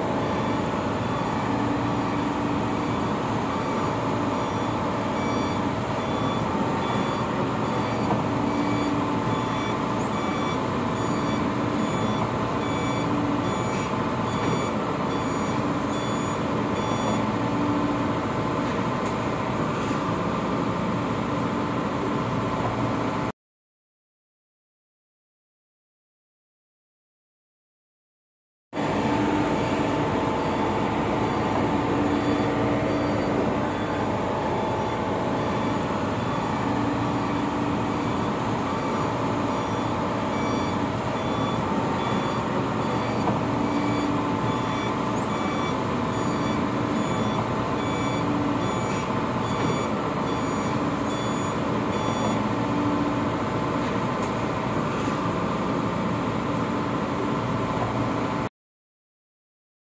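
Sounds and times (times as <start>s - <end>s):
excavator diesel engine running: 0.0s - 23.3s, 28.8s - 58.5s
warning alarm beeping: 0.2s - 17.7s, 29.4s - 53.2s.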